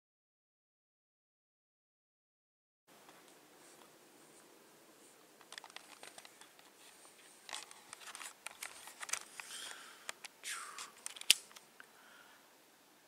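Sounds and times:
camera handling rustling and clicks: 5.4 - 11.7.

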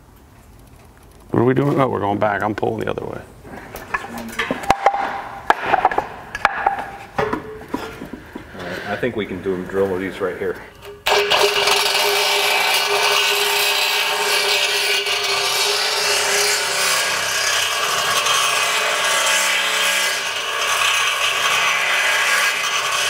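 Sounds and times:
power drill grinding metal: 11.0 - 23.0.

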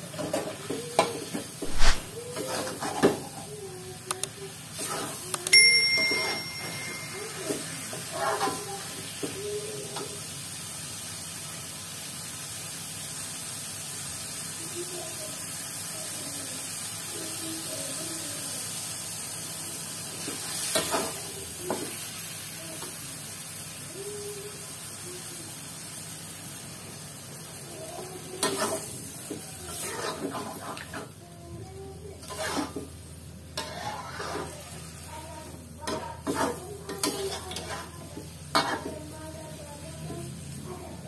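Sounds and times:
food sizzling in a wok: 0.0 - 41.0
metal spatula scraping a pan: 1.6 - 3.5, 4.8 - 5.2, 6.1 - 8.9, 28.4 - 31.1, 32.2 - 35.1, 35.9 - 39.0.

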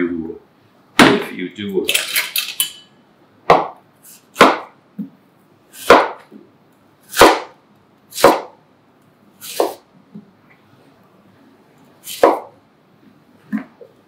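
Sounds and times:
knife cutting on cutting board: 9.4 - 9.8, 12.0 - 12.5.

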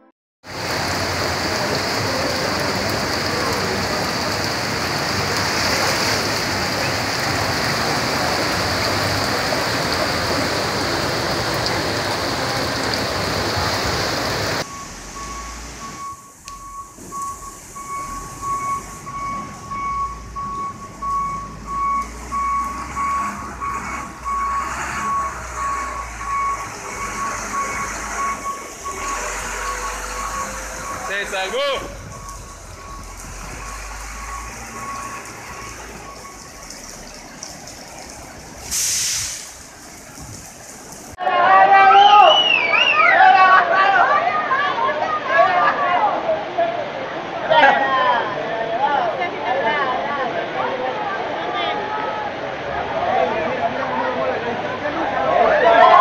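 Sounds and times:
floodwater rushing: 0.4 - 56.0
heavy rain: 0.4 - 56.0
reversing alarm beeping: 14.6 - 37.3.

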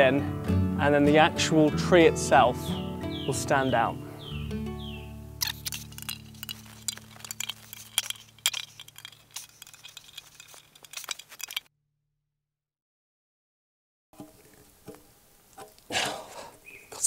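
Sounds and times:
metal tool scraping tin lid: 5.4 - 11.7.

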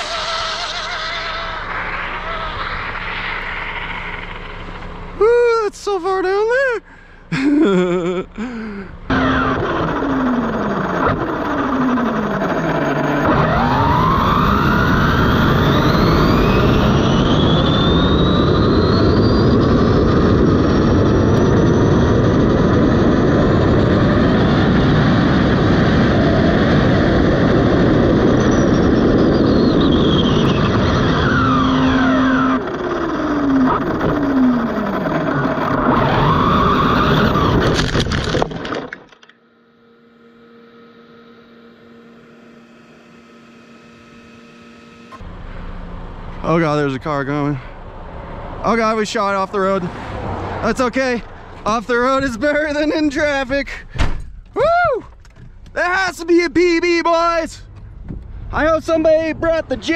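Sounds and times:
wind and tyre roar: 0.0 - 7.3, 8.7 - 39.0, 45.1 - 59.9
electric motor whine: 9.1 - 46.3.

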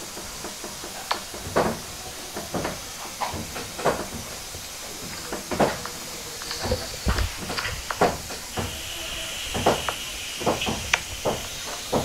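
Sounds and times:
steam hissing: 0.0 - 12.0
water hammer knocks in pipes: 9.5 - 12.0.

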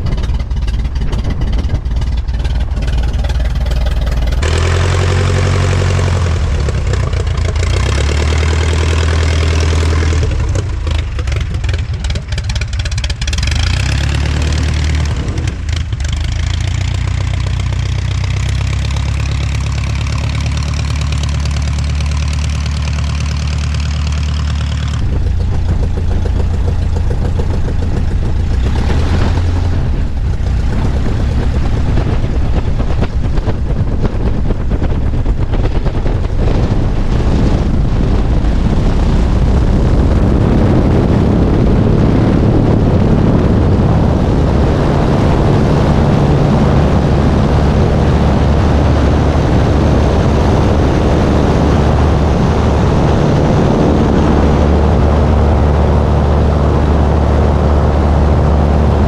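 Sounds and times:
aircraft engine idling: 0.0 - 59.0
rushing propeller air: 0.0 - 59.0.

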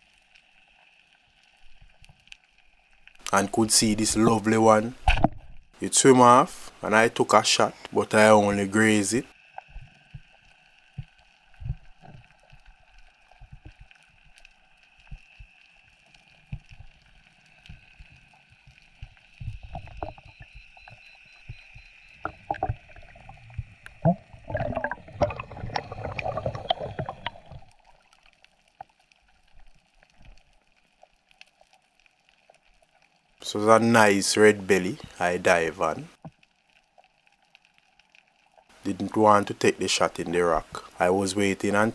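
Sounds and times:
steady underwater whine: 6.2 - 27.9
splashing and bubbling: 9.3 - 33.4.

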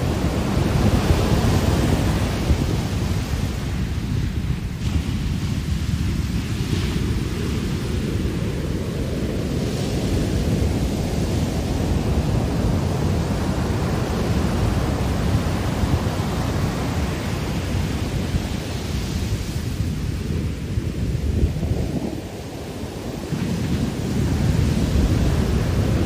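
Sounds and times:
ocean waves breaking on beach: 0.0 - 26.0.

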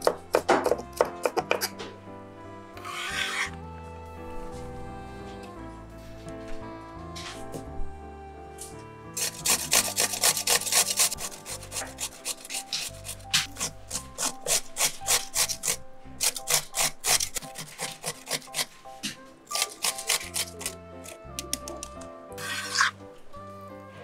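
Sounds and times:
grater rasping: 2.8 - 3.5, 9.2 - 23.0.

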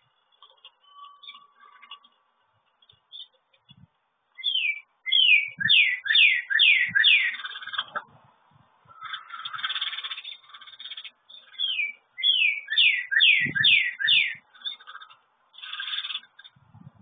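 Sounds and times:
songbird whistling downward notes: 4.4 - 7.3, 11.6 - 14.4.

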